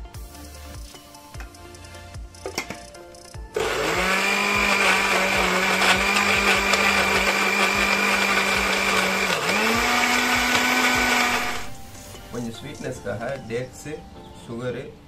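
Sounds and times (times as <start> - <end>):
blender motor whining: 3.5 - 11.8.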